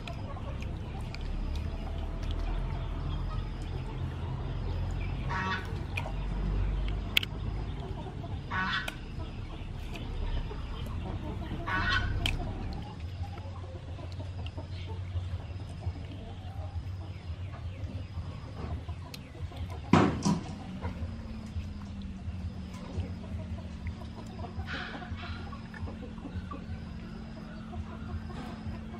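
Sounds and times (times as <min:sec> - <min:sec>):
chicken calling: 0:00.0 - 0:06.8, 0:07.6 - 0:15.0, 0:20.5 - 0:28.9.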